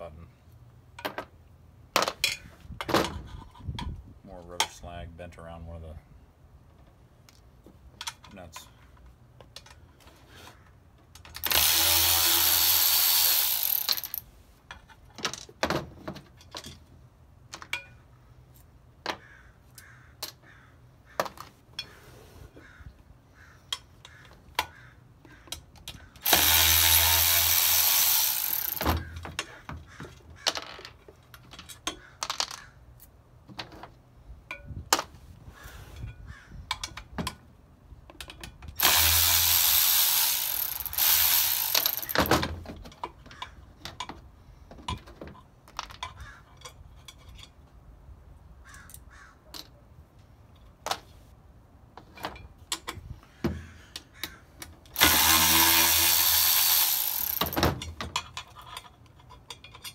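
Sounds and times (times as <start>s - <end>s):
power ratchet spinning: 11.4s - 14.2s, 26.2s - 29.1s, 38.8s - 42.3s, 55.0s - 57.7s.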